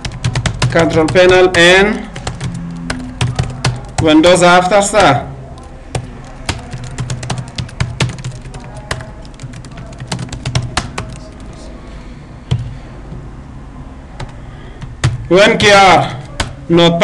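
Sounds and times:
computer keyboard typing: 0.0s - 11.7s, 14.2s - 15.3s.

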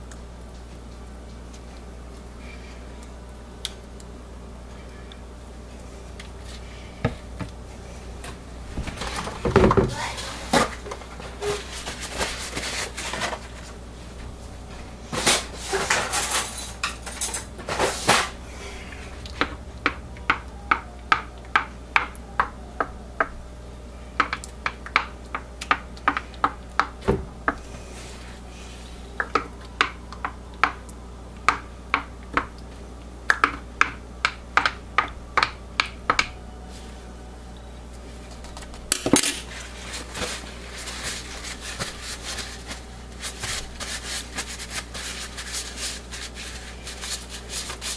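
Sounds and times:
plastic utensils clattering: 15.0s - 18.4s.

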